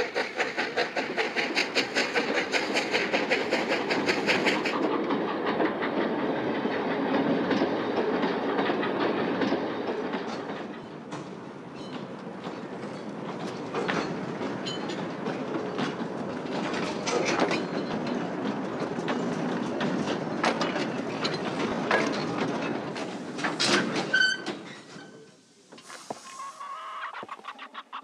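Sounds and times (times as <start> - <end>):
train wheels clacking on rail joints: 0.0 - 25.9
wheel squeal: 23.7 - 27.3.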